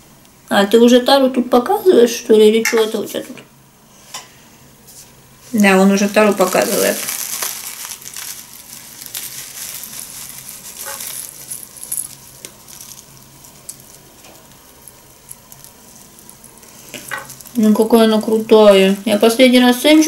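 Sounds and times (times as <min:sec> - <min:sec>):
paper packet rustling: 0:05.4 - 0:19.5
tea leaves trickling: 0:05.4 - 0:20.0.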